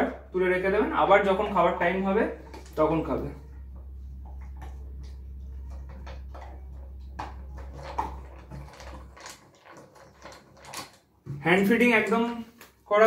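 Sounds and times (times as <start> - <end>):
steady low hum: 0.0 - 9.2
puppy chewing food in metal bowl: 2.4 - 11.2.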